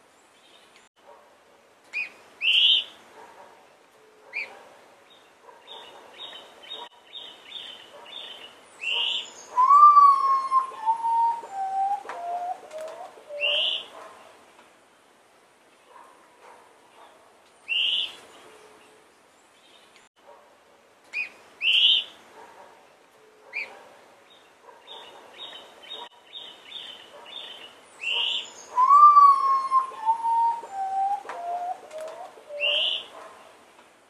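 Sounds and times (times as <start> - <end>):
forest birds chirping: 0.0 - 20.1, 21.0 - 33.8
bird whistling descending notes: 9.6 - 12.6, 28.8 - 31.8.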